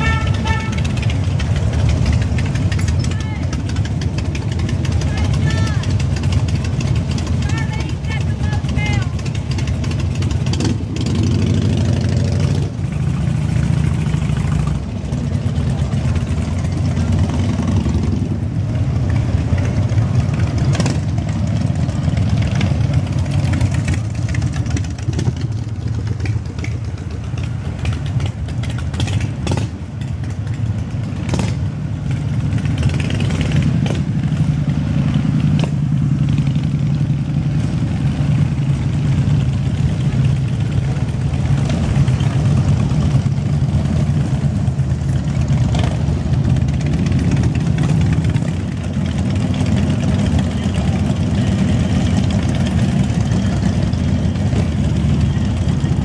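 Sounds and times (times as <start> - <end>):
motorcycle engine revving: 0.0 - 56.0
motorcycles passing slowly: 0.0 - 56.0.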